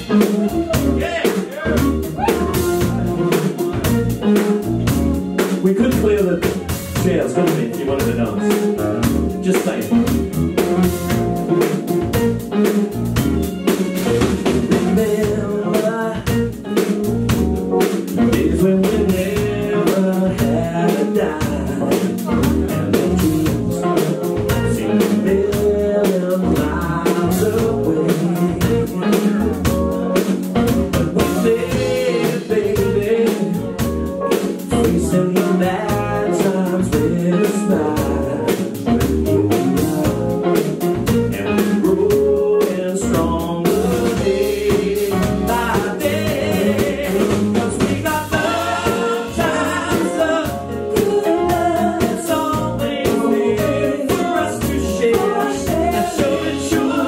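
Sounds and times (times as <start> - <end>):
people singing: 0.0 - 3.8, 18.2 - 29.6, 30.9 - 33.8, 34.7 - 38.8, 41.3 - 57.0
bass: 0.0 - 57.0
keyboards: 0.0 - 57.0
steady drum beat: 0.0 - 57.0.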